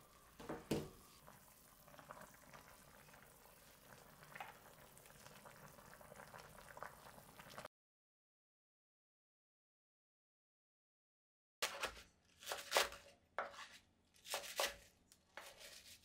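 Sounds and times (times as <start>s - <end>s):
soup simmering and bubbling: 0.0s - 7.7s.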